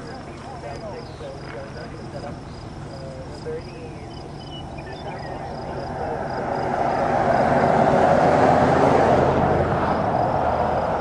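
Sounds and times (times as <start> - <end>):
cricket chirping: 0.0 - 11.0
rushing noise: 4.7 - 11.0.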